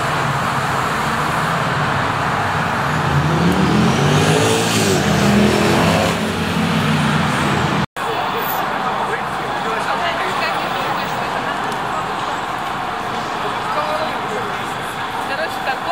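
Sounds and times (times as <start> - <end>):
city street traffic: 0.0 - 15.9
motor vehicle passing close by: 1.0 - 7.8.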